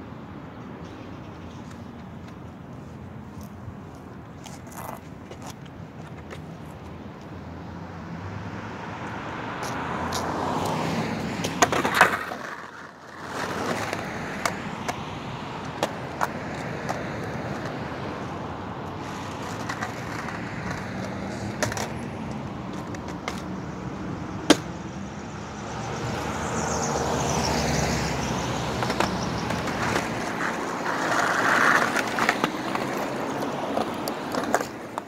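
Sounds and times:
road traffic: 0:00.0 - 0:35.0
skateboard clacking on concrete: 0:03.4 - 0:07.3, 0:11.4 - 0:23.5, 0:24.5 - 0:24.8, 0:28.6 - 0:35.0
vehicle passing close: 0:07.6 - 0:34.7.

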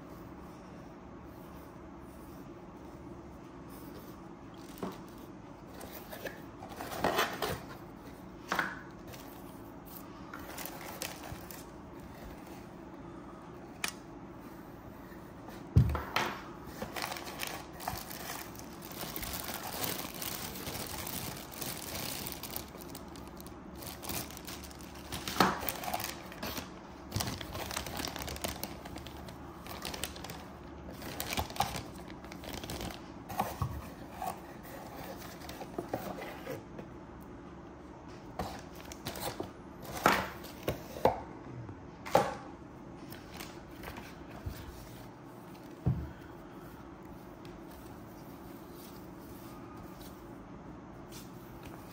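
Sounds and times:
plastic bags crinkling: 0:10.4 - 0:12.0, 0:16.8 - 0:33.2.

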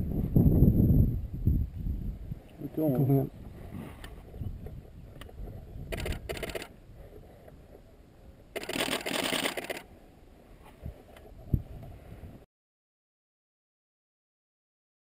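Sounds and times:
camera shutter bursts: 0:05.9 - 0:06.7, 0:08.6 - 0:09.9.

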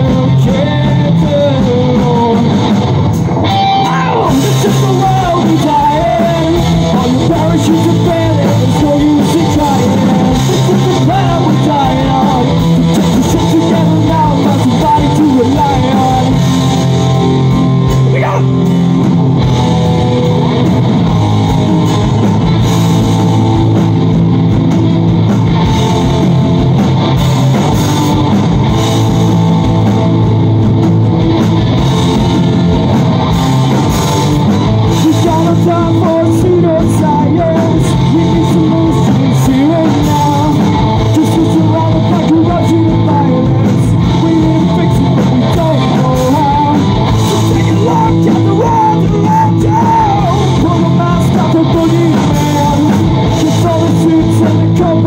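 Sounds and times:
person singing: 0:00.0 - 0:02.6, 0:03.5 - 0:16.6, 0:34.9 - 0:55.0
drums: 0:00.0 - 0:55.0
electric guitars: 0:00.0 - 0:55.0.

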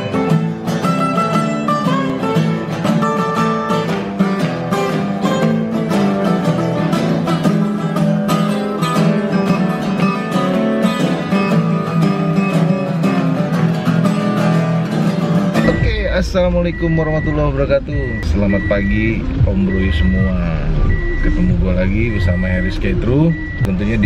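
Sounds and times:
blues acoustic guitar instrumental: 0:00.0 - 0:24.0
low bass line: 0:15.6 - 0:24.0.

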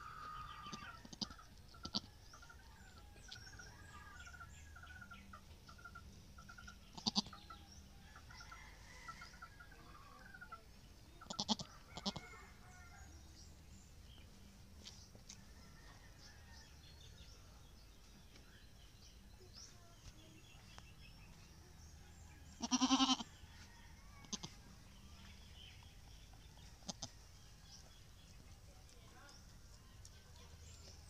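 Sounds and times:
goats bleating: 0:07.0 - 0:07.3, 0:11.3 - 0:12.2, 0:22.6 - 0:23.2.

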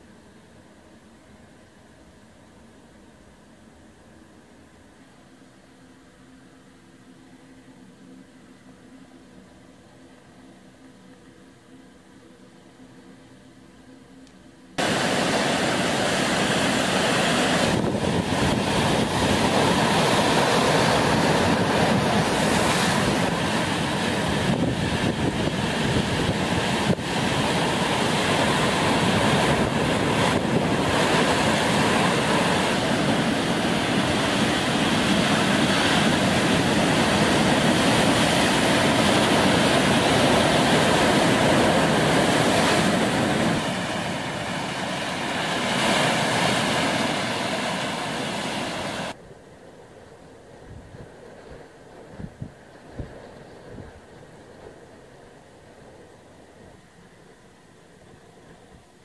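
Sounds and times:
heavy surf breaking on rocks: 0:14.8 - 0:49.2.

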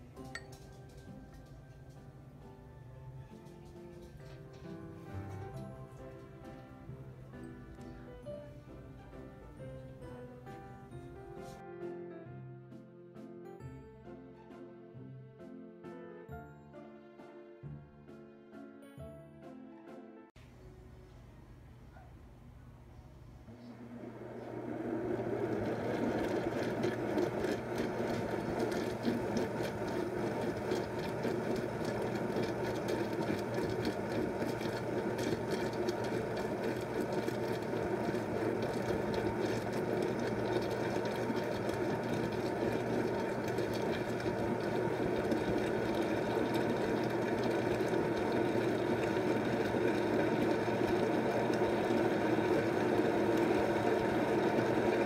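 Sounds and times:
blender motor grinding: 0:24.1 - 0:55.0.

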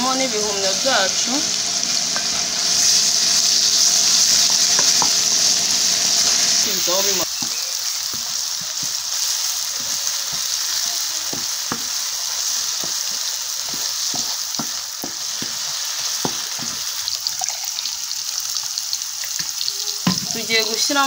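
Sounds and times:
mushrooms sizzling in a frying pan: 0:00.0 - 0:21.0
spatula knocking and scraping a pan: 0:04.6 - 0:05.2, 0:07.3 - 0:17.2.

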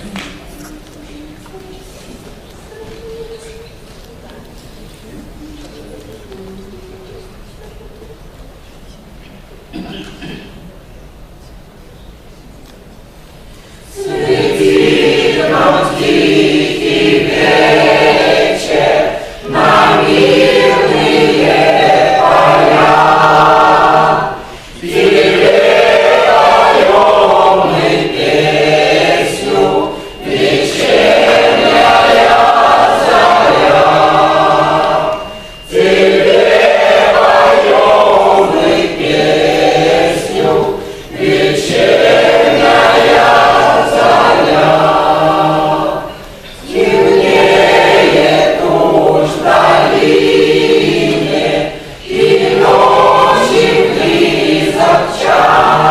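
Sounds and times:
mixed choir singing unaccompanied: 0:13.7 - 0:55.9.

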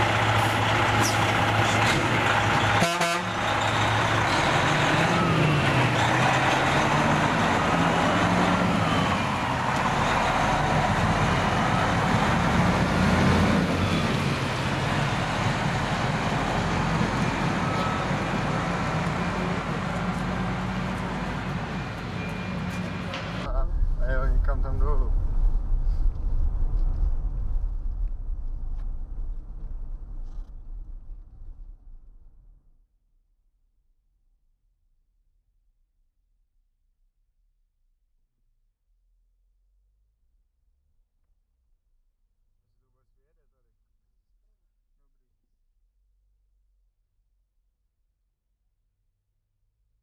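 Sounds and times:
truck diesel engine accelerating: 0:00.0 - 0:23.6.

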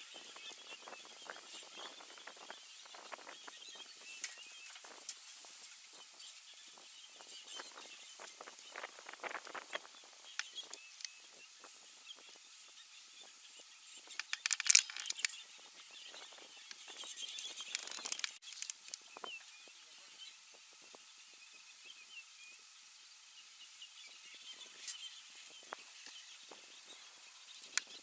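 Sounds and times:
chirps: 0:00.0 - 0:28.0
short crackles: 0:16.7 - 0:19.0.

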